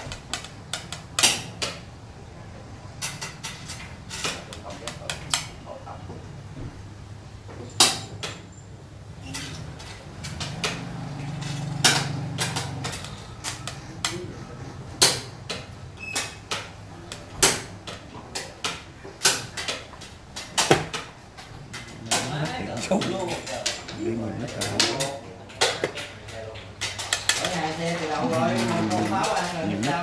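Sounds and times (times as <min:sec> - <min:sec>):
chess pieces clacking on board: 0:09.3 - 0:30.0.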